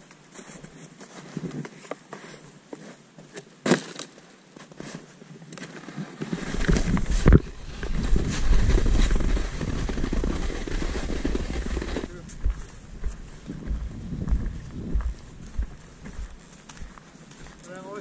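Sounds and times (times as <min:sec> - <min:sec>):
snowboard scraping over snow: 0:06.0 - 0:12.2
wind rumbling on microphone: 0:06.4 - 0:17.0.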